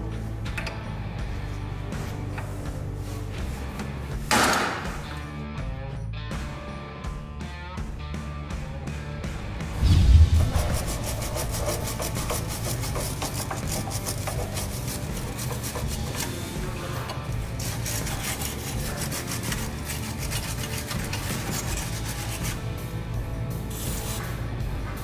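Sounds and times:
background music: 0.0s - 25.0s
wire brush scrubbing metal: 9.9s - 22.7s.

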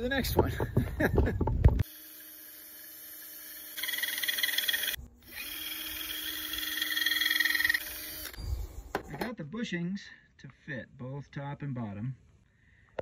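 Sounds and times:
cordless drill running: 1.8s - 8.5s.

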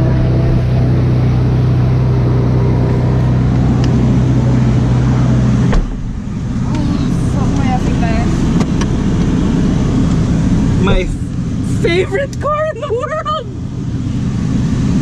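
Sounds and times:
car engine idling: 0.0s - 15.0s
car door shutting: 5.6s - 6.9s.

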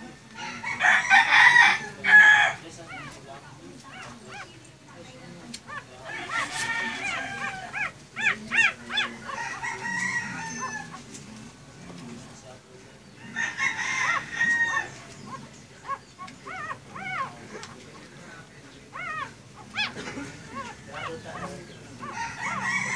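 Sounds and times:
puppies squealing and whimpering: 1.0s - 11.0s, 13.4s - 18.2s, 18.8s - 22.9s
long loud puppy call: 5.7s - 11.0s, 13.8s - 17.7s, 18.9s - 22.9s.

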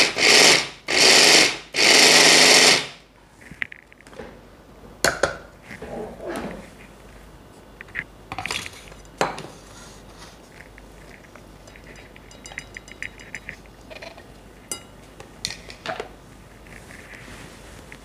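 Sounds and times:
bowl knocking against ceramic bowl: 11.6s - 13.6s.

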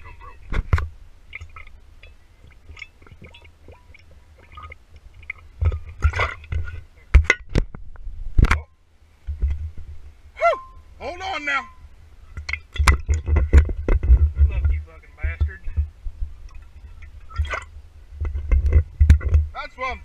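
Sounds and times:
liquid gurgling in glass bottle: 1.3s - 6.8s, 16.5s - 17.7s.

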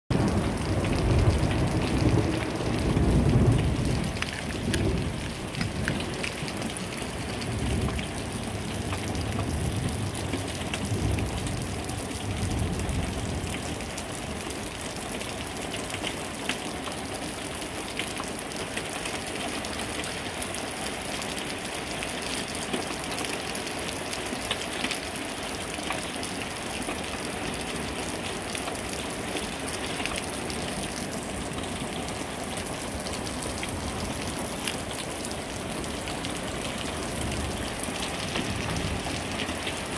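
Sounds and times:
thunder rumbling: 0.1s - 13.9s
rain falling: 0.1s - 39.9s.

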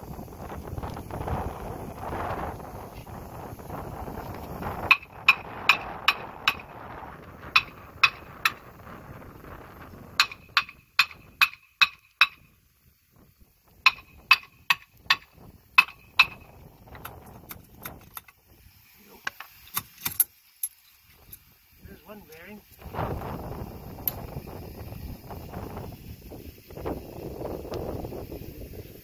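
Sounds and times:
hammer striking steel hub: 4.9s - 6.7s, 7.5s - 8.6s, 10.2s - 12.5s, 13.9s - 16.5s.

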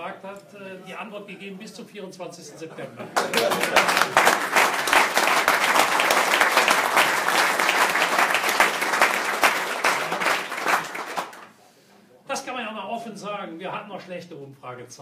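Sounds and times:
audience applauding: 3.2s - 11.5s.

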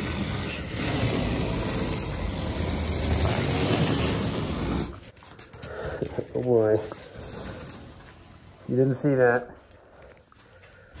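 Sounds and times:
masking tape being peeled off: 0.0s - 5.4s.

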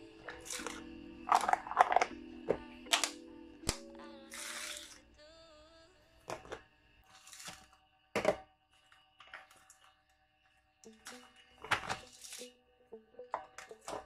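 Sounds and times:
plastic containers clicking: 0.3s - 3.2s.

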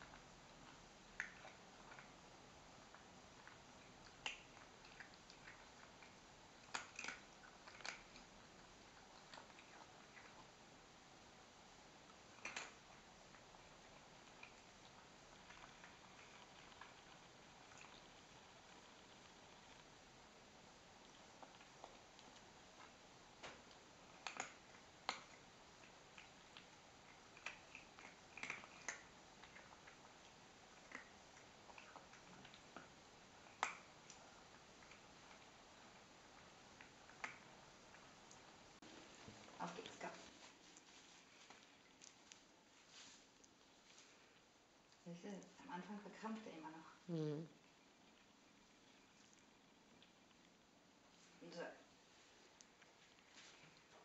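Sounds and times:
cat chewing clicks: 2.9s - 10.4s, 12.3s - 19.8s, 21.1s - 34.2s.

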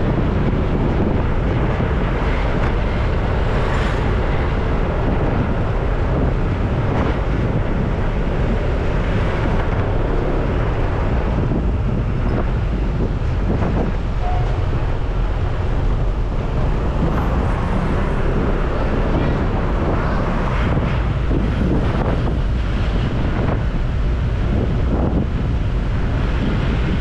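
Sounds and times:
road and traffic noise: 0.0s - 27.0s
wind rumbling on microphone: 0.0s - 27.0s.

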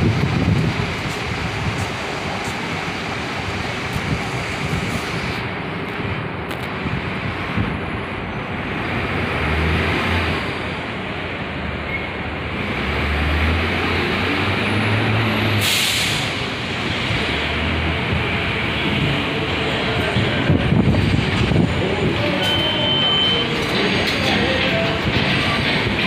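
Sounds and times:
diesel engine rumbling: 0.0s - 26.0s
air brakes hissing: 15.5s - 17.2s.

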